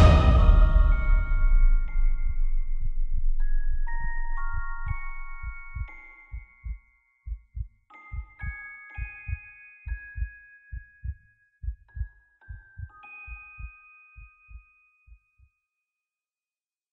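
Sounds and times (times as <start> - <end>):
low double-thump pulse: 0.0 - 8.6
chime-like notes: 0.0 - 15.5.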